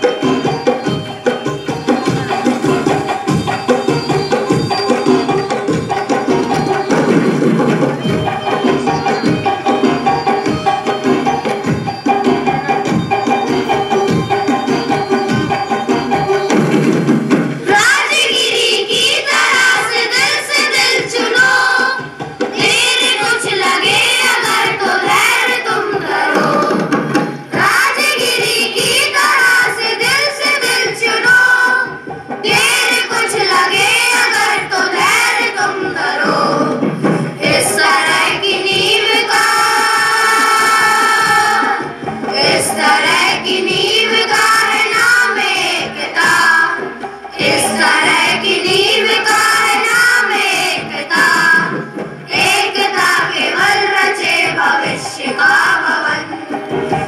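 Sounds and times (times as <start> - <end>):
children's choir singing: 0.0 - 57.0
keyboard and drums: 0.0 - 57.0.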